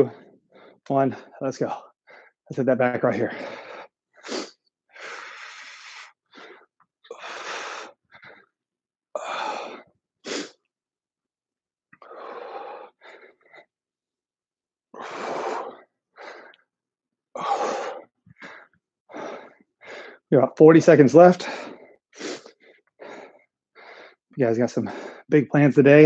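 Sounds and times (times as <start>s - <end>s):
man breathing hard: 0.0s - 2.5s, 3.2s - 8.6s, 9.2s - 10.6s, 12.0s - 13.7s, 15.0s - 16.7s, 17.4s - 20.3s, 21.4s - 25.3s.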